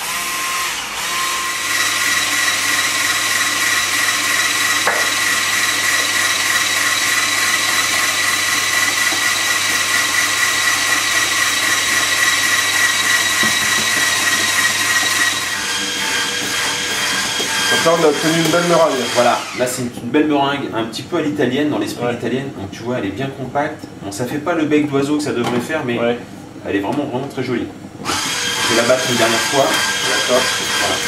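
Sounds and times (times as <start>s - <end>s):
electric hand beater whine: 0.0s - 19.7s, 28.0s - 31.0s.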